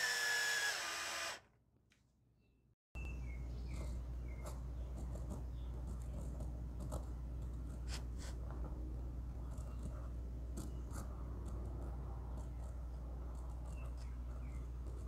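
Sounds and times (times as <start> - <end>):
pen scratching on wood: 3.7 - 8.4.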